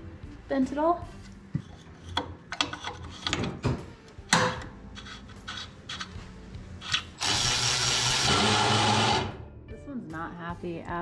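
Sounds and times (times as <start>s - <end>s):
tools knocking and clattering: 1.6s - 6.2s.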